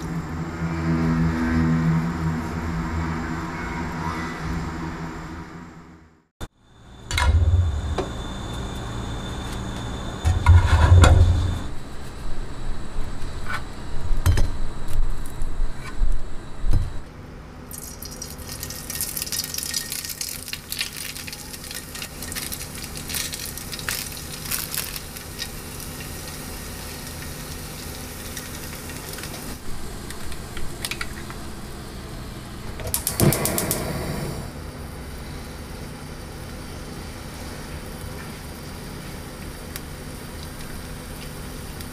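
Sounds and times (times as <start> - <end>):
steady low hum: 0.0 - 17.8, 21.4 - 41.9
plastic packaging crinkling: 18.0 - 25.8.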